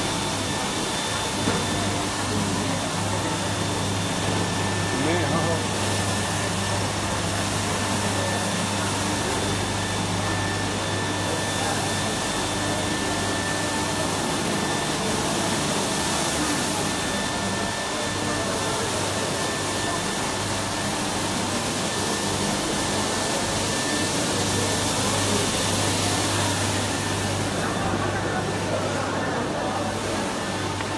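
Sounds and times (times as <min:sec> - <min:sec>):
carpet-washing machine running: 0:00.0 - 0:30.9.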